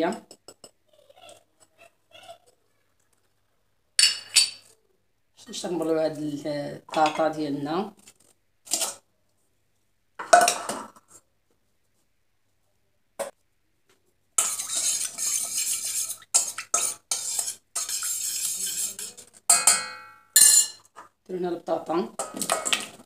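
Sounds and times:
spoon stirring and scraping metal bowl: 6.9s - 9.0s, 14.4s - 21.1s, 22.2s - 23.0s
spoon clinking on metal bowl: 14.4s - 20.9s.

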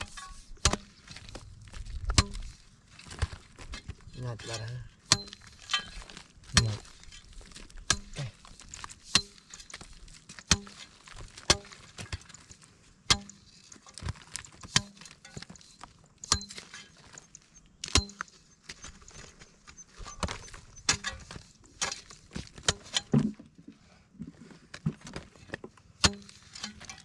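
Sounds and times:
hoe chopping into dry clay: 0.2s - 3.9s, 4.6s - 12.4s, 14.0s - 15.5s, 17.8s - 18.9s, 26.0s - 27.0s.

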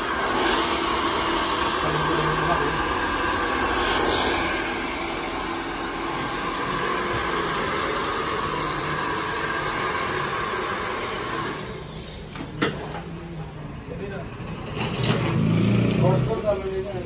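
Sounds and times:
hair dryer running: 0.0s - 12.4s.

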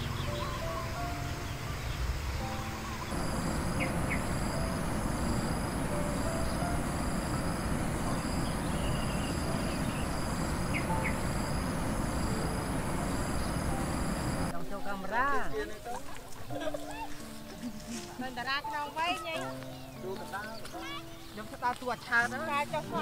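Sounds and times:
rushing background noise: 1.6s - 14.5s
insects trilling: 2.2s - 14.5s
bird chirps: 2.4s - 14.5s.

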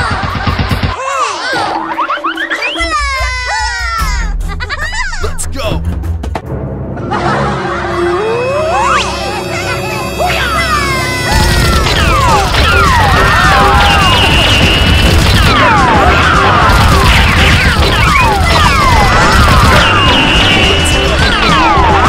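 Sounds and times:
background music: 0.0s - 22.0s
gunfire rattle with falling whistles: 11.4s - 21.6s.

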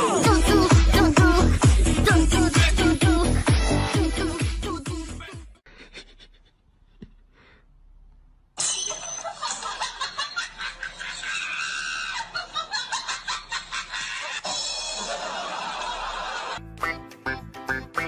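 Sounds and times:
person laughing hard: 5.2s - 6.6s, 9.4s - 16.6s.

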